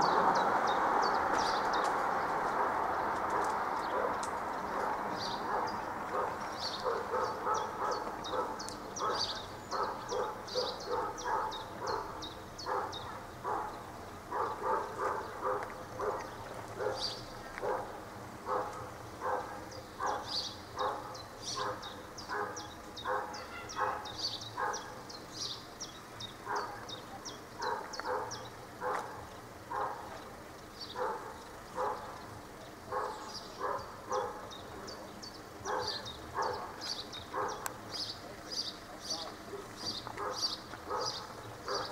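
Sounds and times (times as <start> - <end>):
dog barking: 2.6 - 25.0, 26.4 - 26.9, 27.6 - 30.2, 30.9 - 32.2, 32.9 - 34.5, 35.6 - 37.7, 40.2 - 41.9.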